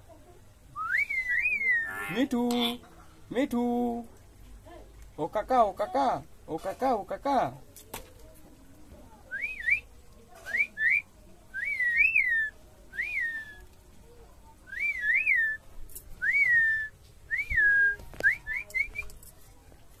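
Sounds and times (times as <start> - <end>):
whistled phrases: 0.7 - 2.1, 9.3 - 13.7, 14.6 - 19.2.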